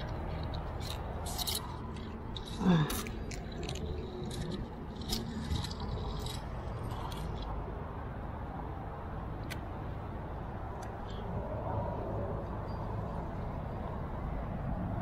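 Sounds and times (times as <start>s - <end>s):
metal climbing gear clinking: 0.0s - 7.5s.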